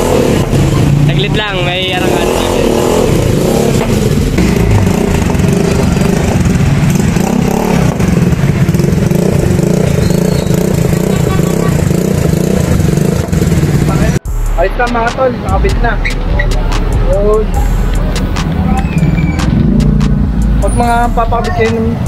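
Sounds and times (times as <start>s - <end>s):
scooter engine running loud: 0.0s - 14.3s.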